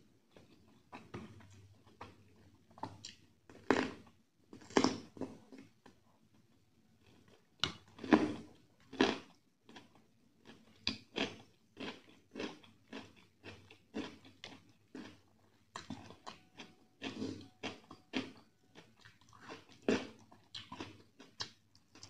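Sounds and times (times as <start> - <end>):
open-mouthed chewing: 7.0 - 22.0.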